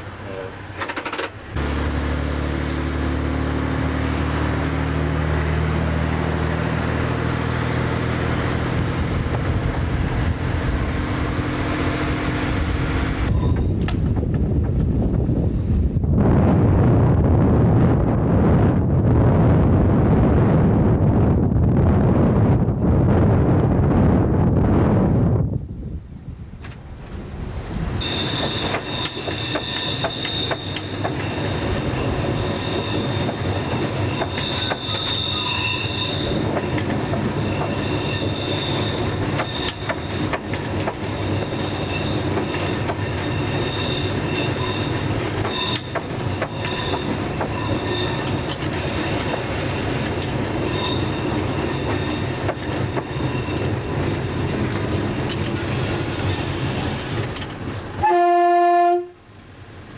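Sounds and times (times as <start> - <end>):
diesel railbus engine droning: 0.0 - 59.9
high-pitched wheel squeal: 13.2 - 13.8, 28.0 - 54.3.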